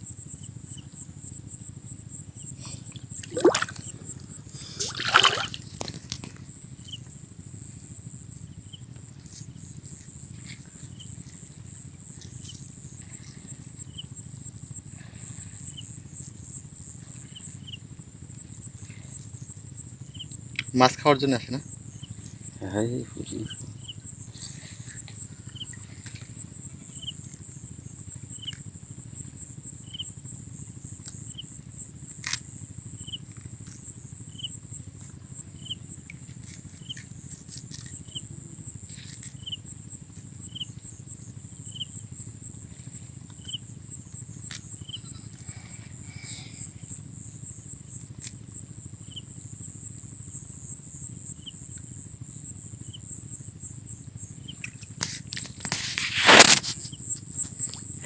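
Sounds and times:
insects droning: 0.0s - 58.0s
low background rumble: 0.1s - 20.6s, 21.2s - 55.4s.

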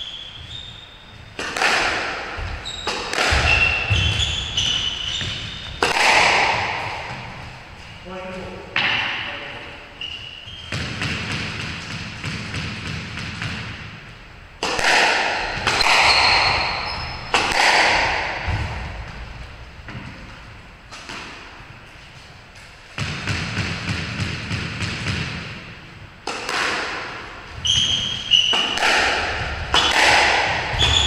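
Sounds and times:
squash ball hit by rackets: 1.3s - 7.6s, 10.6s - 14.0s, 14.6s - 20.3s, 22.9s - 31.0s
ball thudding against walls: 1.4s - 7.5s.

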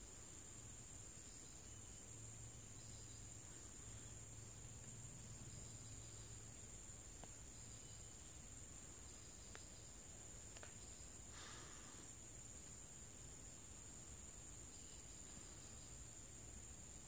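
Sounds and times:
soft ticks: 7.2s - 7.4s, 9.4s - 9.7s, 10.5s - 10.8s
high-pitched insect drone: 13.5s - 17.0s.

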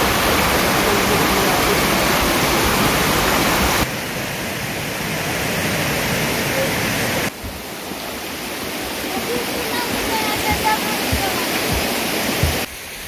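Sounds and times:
rushing water: 0.0s - 13.0s.

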